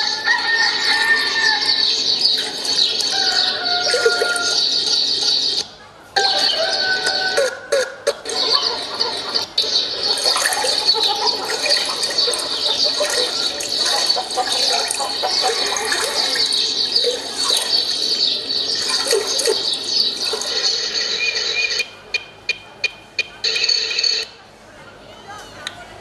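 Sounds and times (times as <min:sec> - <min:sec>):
birds chirping: 0:00.0 - 0:23.3
running water: 0:00.6 - 0:05.6, 0:08.2 - 0:21.0.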